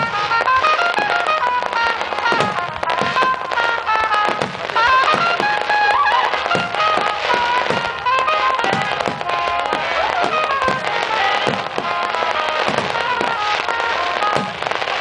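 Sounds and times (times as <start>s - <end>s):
firework shells booming: 0.0s - 15.0s
music with long held notes: 0.0s - 15.0s.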